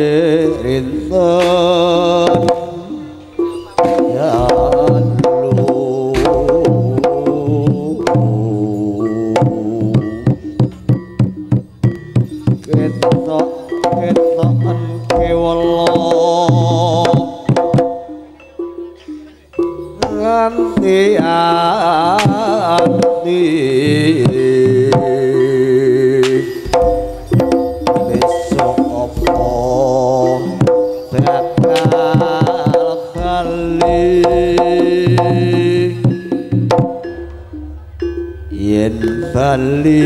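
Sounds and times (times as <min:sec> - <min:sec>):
gong and metallophone tones: 0:00.0 - 0:40.0
wavering melody line: 0:00.0 - 0:40.0
rapid hand drum strokes: 0:01.2 - 0:08.3, 0:09.4 - 0:18.0, 0:26.6 - 0:37.6.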